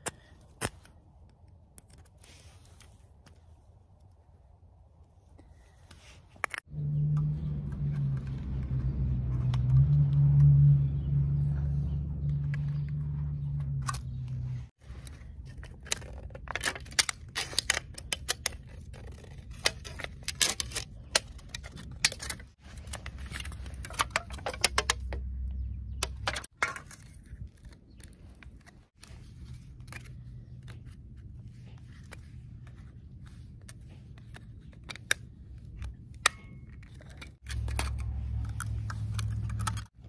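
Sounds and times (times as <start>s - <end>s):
aluminium can crinkling and clicking: 15.5s - 25.2s.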